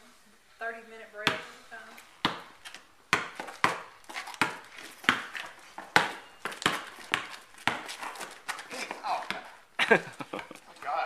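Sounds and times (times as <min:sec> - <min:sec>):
basketball bouncing on hard court: 0:01.2 - 0:01.5, 0:02.2 - 0:02.5, 0:03.1 - 0:08.6, 0:09.2 - 0:09.5.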